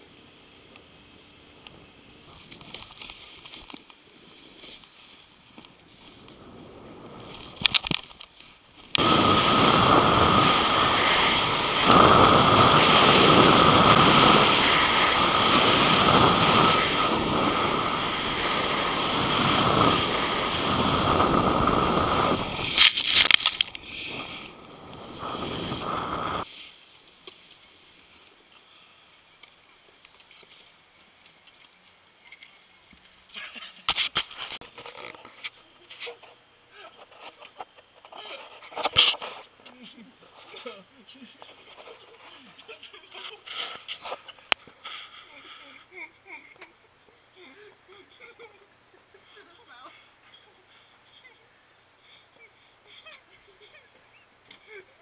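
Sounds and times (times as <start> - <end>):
wind on microphone: 9.0 - 26.4
snowboard scraping over snow: 9.0 - 26.5.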